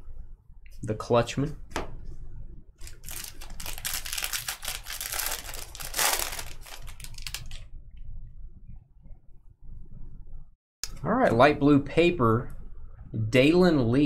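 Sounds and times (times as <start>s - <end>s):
foil wrapper crinkling and tearing: 2.8s - 7.6s.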